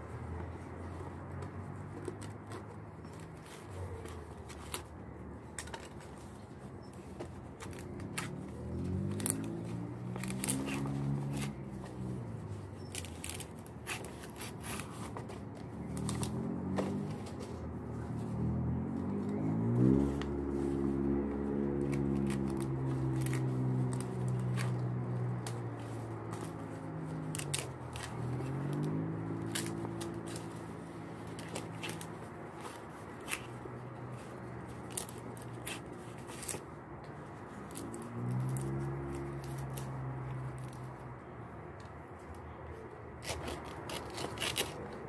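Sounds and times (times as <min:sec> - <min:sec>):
leaves ripping by hand: 0:07.5 - 0:17.3, 0:18.8 - 0:41.0, 0:43.2 - 0:45.0
low engine hum: 0:14.3 - 0:43.0.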